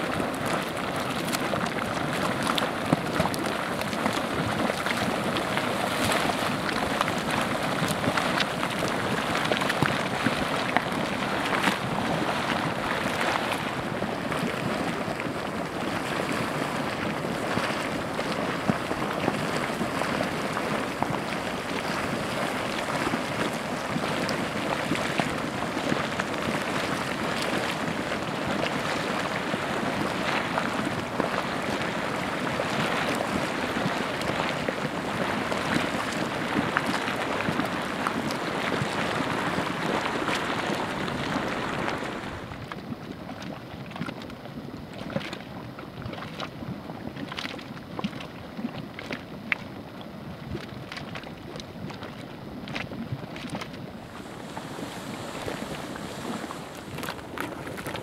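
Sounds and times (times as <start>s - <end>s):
mud pots bubbling and hissing: 0.0s - 58.0s.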